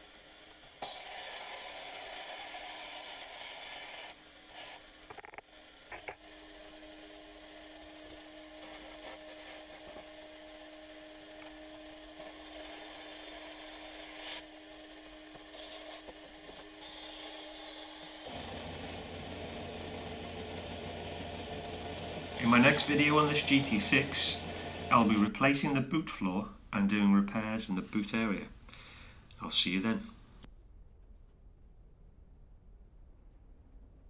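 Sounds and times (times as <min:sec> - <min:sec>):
low hum: 0:18.2 - 0:25.4
sprayer hissing: 0:18.2 - 0:25.5.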